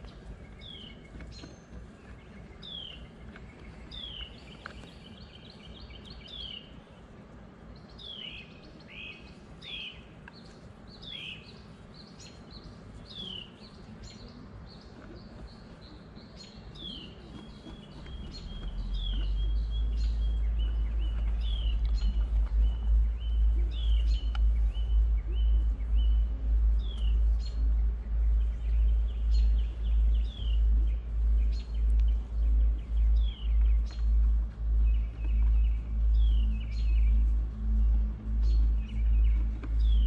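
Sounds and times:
low rumble: 17.2s - 40.0s.

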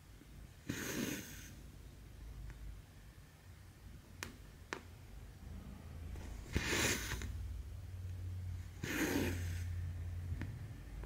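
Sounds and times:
low steady hum: 1.5s - 11.0s.

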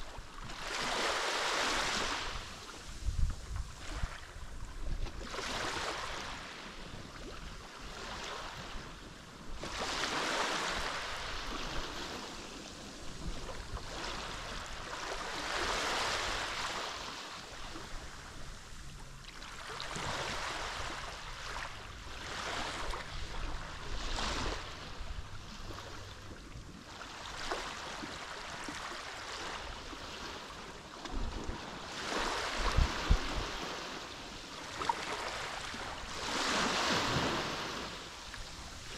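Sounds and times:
wind gusts on microphone: 0.0s - 7.6s, 31.1s - 34.0s
waves breaking on shore: 0.0s - 38.9s.

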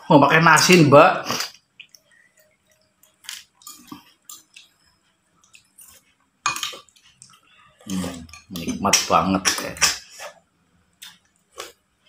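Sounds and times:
spoons clinking on ceramic bowls: 6.4s - 6.9s, 7.9s - 9.0s.

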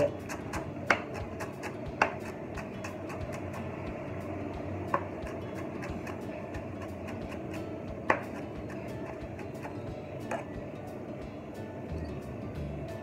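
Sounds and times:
knife chopping on wooden board: 0.0s - 3.6s, 4.9s - 10.5s.

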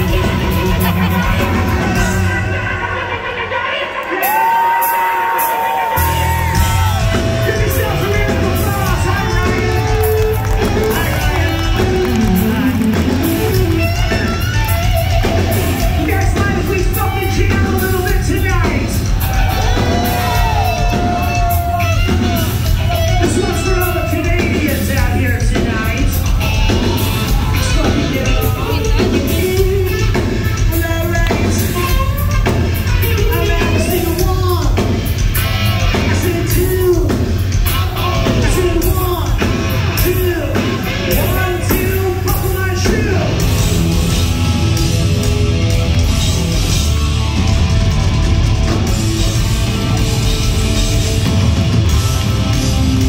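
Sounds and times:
live hard rock band: 0.0s - 53.0s
man singing lead vocals: 27.4s - 32.4s.

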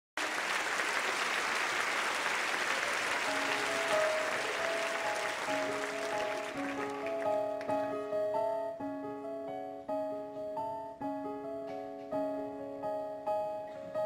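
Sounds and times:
audience applauding: 0.2s - 8.0s
slow music of held notes: 3.1s - 14.0s.

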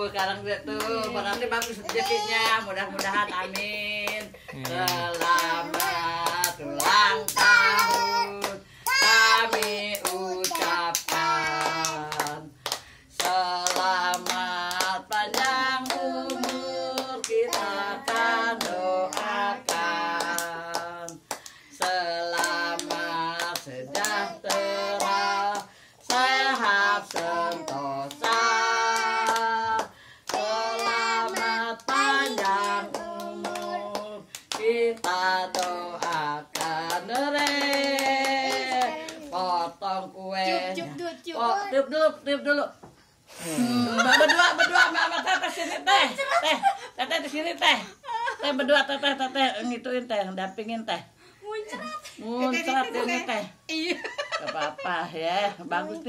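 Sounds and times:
group singing a birthday song: 0.0s - 47.8s, 54.4s - 56.0s
people clapping: 0.1s - 39.4s.

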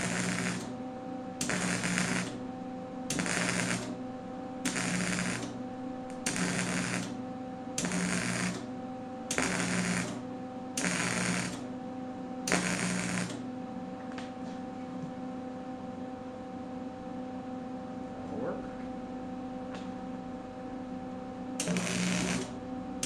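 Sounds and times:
welding arc crackling: 0.0s - 0.7s, 1.4s - 2.4s, 3.1s - 4.0s, 4.6s - 7.2s, 7.8s - 8.7s, 9.3s - 10.2s, 10.8s - 11.6s, 12.5s - 13.4s, 21.6s - 22.6s
steady electrical hum: 0.0s - 23.0s.

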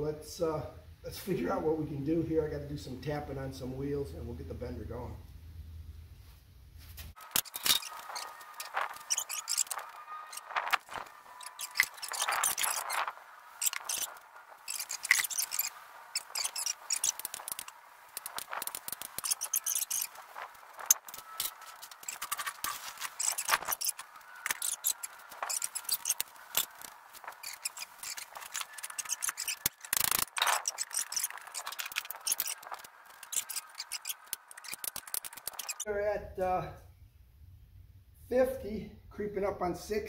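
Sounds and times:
pump handle squeaking and clicking: 7.2s - 20.2s, 20.8s - 35.8s
sharp metal taps and creaks: 7.2s - 35.8s.

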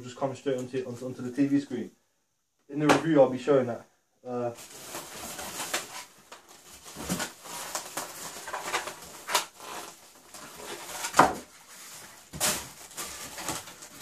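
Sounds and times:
foam packing squeaking on cardboard: 4.6s - 14.0s.

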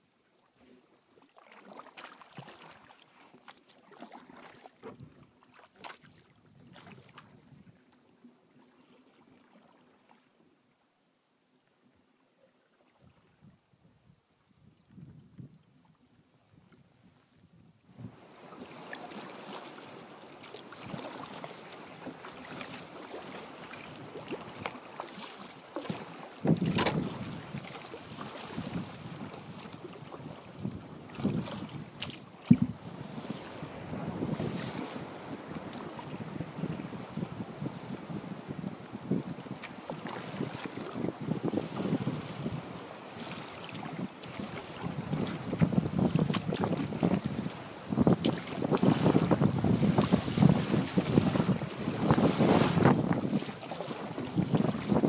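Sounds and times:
water splashing against kayak: 0.4s - 10.7s, 17.9s - 55.0s
wind buffeting microphone: 26.4s - 39.5s, 40.1s - 42.8s, 43.7s - 55.0s.

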